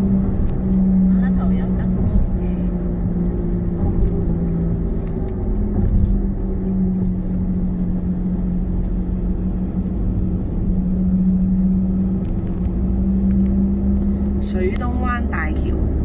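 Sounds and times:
low engine hum: 0.0 - 16.0
tyre and road rumble: 0.0 - 16.0.

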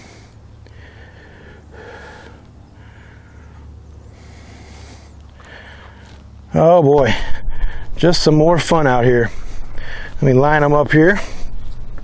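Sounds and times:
man breathing softly: 0.0 - 6.2, 9.3 - 10.2
low steady rumble: 0.0 - 12.0.

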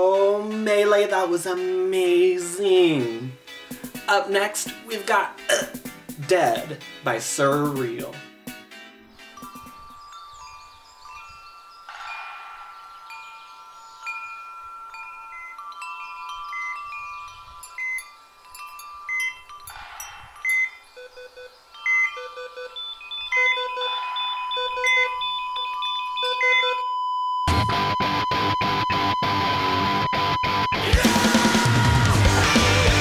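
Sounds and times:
chiming ambient music: 8.8 - 26.7.

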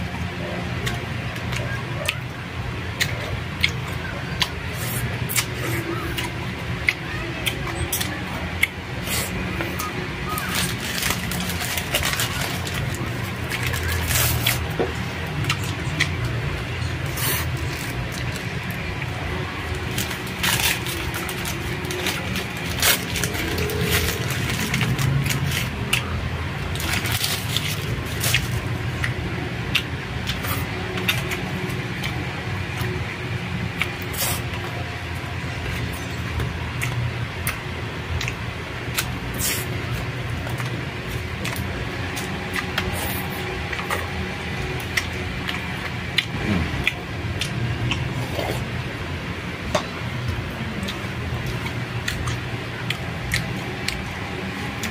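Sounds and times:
steady low hum: 0.0 - 54.9
chewing food: 0.6 - 2.3, 2.9 - 48.9, 50.2 - 54.9
paper wrapper crinkling: 10.3 - 14.7, 19.6 - 25.8, 26.7 - 28.7.

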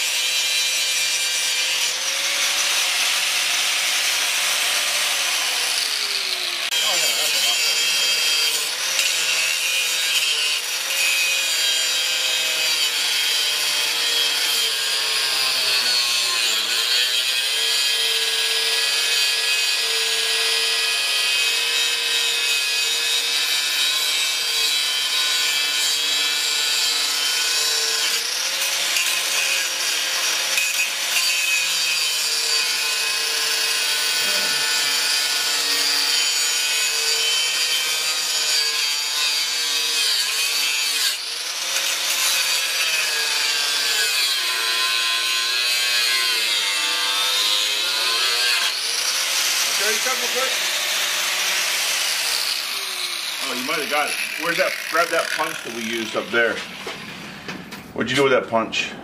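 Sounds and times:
angle grinder grinding steel: 0.0 - 57.5.

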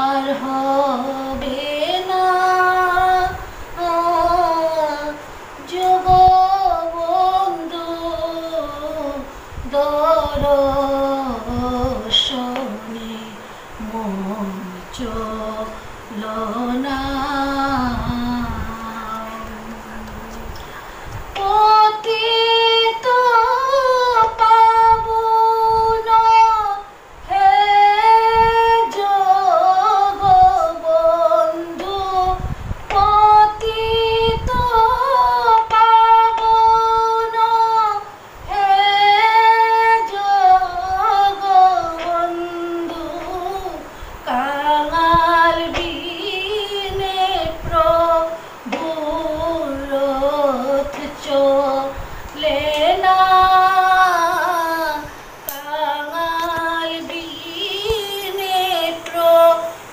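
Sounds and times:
woman singing devotional song: 0.0 - 59.9
woman breathing: 20.5 - 21.2, 43.9 - 44.2.

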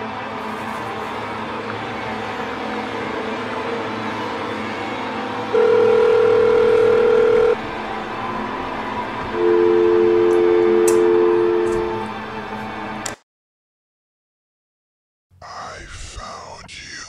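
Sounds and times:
quiet droning music: 0.0 - 13.1
telephone ringback tone: 5.5 - 7.8, 9.3 - 12.1
lower steady tone: 5.5 - 12.1.

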